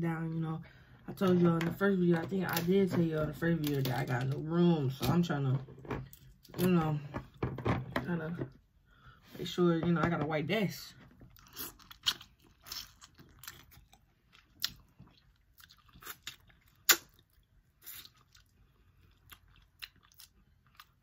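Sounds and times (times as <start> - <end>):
wet chewing and biting: 11.3 - 21.0.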